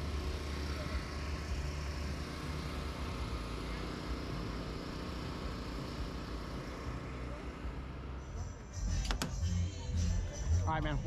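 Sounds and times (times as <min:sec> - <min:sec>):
engine rumbling: 0:00.0 - 0:11.0.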